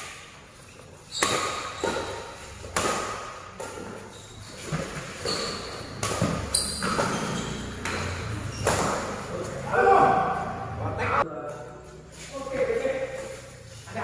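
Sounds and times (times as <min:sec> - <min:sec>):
shoes squeaking on court floor: 0:00.0 - 0:09.7
racket hitting shuttlecock: 0:01.1 - 0:10.6.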